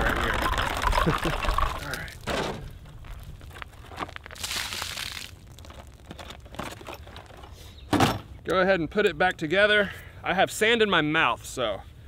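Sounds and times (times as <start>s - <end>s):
plastic container crinkling: 0.0s - 2.3s.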